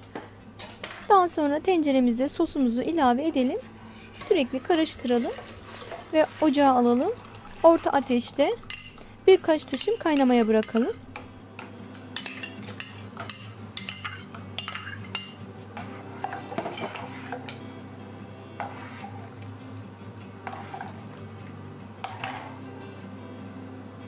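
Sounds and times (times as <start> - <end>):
metal ladle clinking in a pot: 8.6 - 9.1, 9.7 - 11.3, 12.2 - 15.4.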